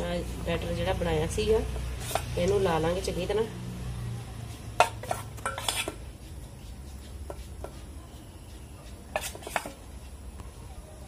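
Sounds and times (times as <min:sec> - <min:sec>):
metal spoon clinking on steel bowl: 0:04.8 - 0:06.0.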